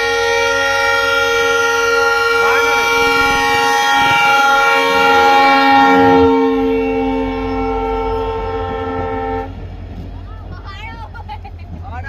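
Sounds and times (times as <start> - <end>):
locomotive air horn blast: 0.0 - 9.6
diesel engine rumble: 0.0 - 12.0.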